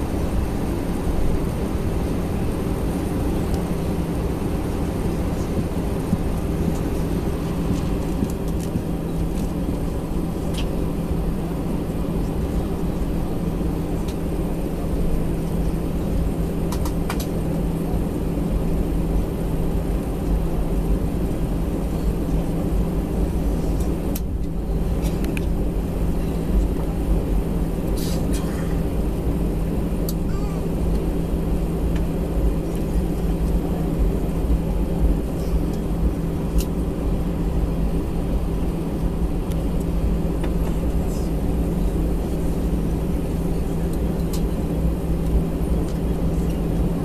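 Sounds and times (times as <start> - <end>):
aircraft cabin engine hum: 0.0 - 47.0.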